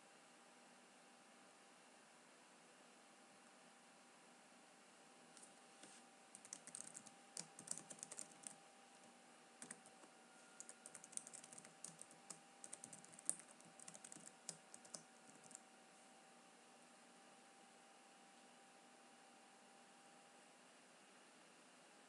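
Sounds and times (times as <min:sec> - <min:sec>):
faint steady hum: 0:00.0 - 0:22.0
keyboard typing: 0:06.3 - 0:08.6, 0:09.6 - 0:15.6.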